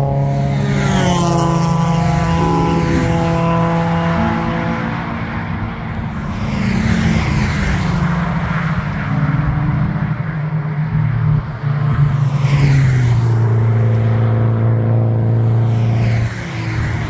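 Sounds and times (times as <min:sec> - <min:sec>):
race cars passing: 0:00.0 - 0:17.0.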